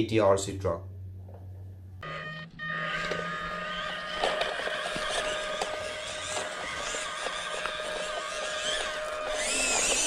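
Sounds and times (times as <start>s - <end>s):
toy car electric motor whining: 2.0s - 10.0s.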